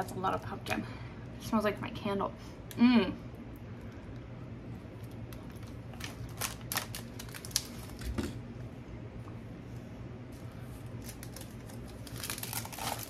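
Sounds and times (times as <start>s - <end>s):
steady low hum: 0.0s - 13.0s
foil wrapper crinkling: 5.0s - 8.2s, 10.8s - 13.0s.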